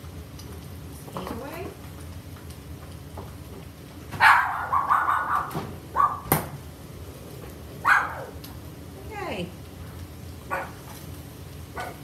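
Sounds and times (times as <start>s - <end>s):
dog barking: 4.2s - 6.3s, 7.8s - 8.4s, 10.5s - 10.8s.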